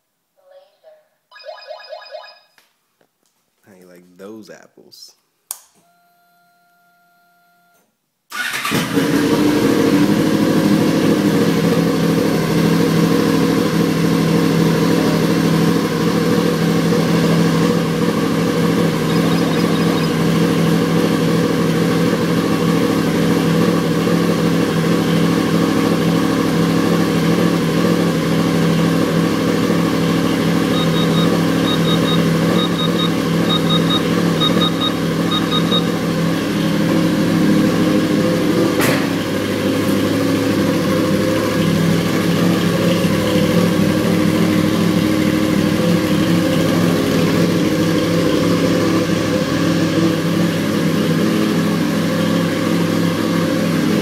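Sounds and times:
short high beeps: 0:01.3 - 0:02.6, 0:19.0 - 0:20.2, 0:30.7 - 0:35.9
motorcycle engine idling: 0:10.1 - 0:54.0.

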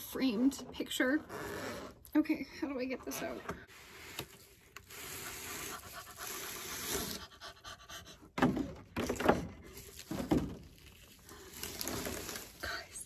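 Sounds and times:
bubble wrap and plastic rustling: 0:09.5 - 0:13.0.

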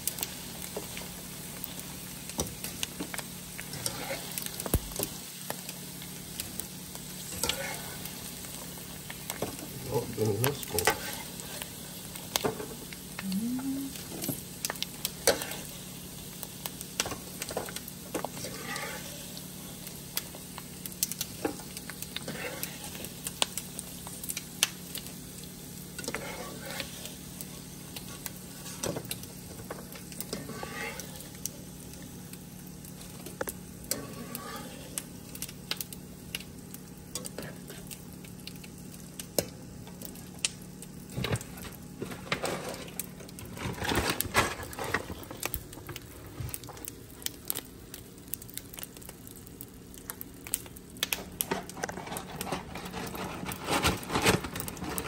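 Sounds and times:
frying oil sizzling and popping: 0:00.0 - 0:55.0
metal skimmer stirring in pan: 0:03.6 - 0:05.1, 0:07.2 - 0:12.6, 0:15.1 - 0:15.8, 0:17.0 - 0:19.4, 0:21.2 - 0:24.4, 0:26.0 - 0:31.5, 0:33.1 - 0:35.1.

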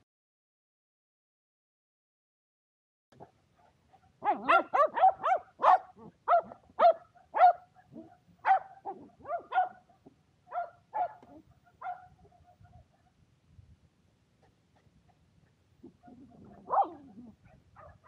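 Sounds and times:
dog barking short high barks: 0:04.2 - 0:07.8, 0:08.4 - 0:09.9, 0:10.5 - 0:12.2.

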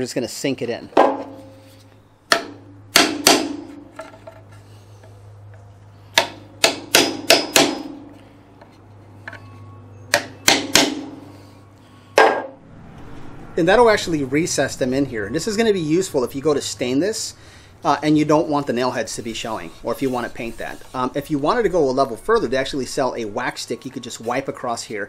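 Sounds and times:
hammer tapping nail punch: 0:06.1 - 0:08.0, 0:10.1 - 0:11.1.

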